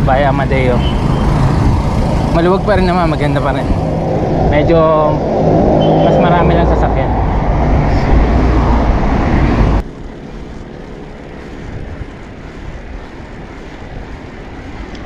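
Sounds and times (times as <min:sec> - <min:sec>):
loud low rumbling rush: 0:00.0 - 0:15.0
road noise: 0:00.0 - 0:15.0.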